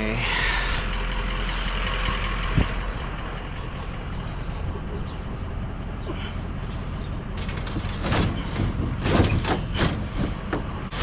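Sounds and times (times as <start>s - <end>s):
vehicle engine rumbling: 0.0s - 11.0s
short clatters and knocks: 7.4s - 11.0s.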